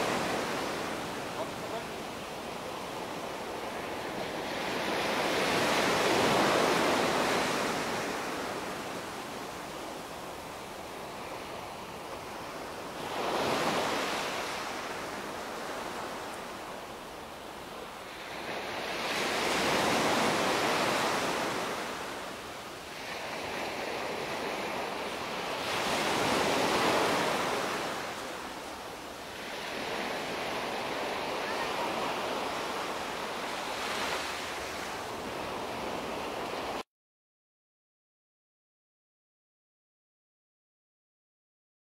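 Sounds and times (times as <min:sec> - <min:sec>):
small waves breaking on beach: 0:00.0 - 0:36.8.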